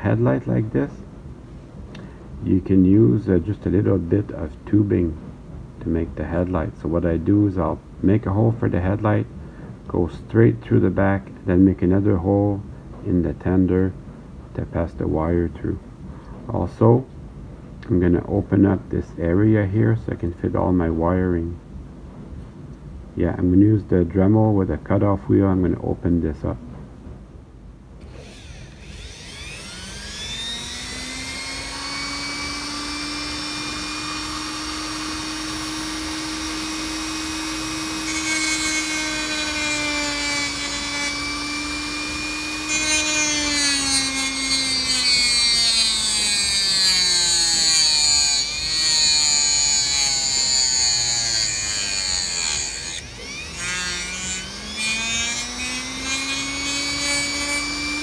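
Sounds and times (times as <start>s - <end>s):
rotary tool cutting plastic: 28.0s - 58.0s.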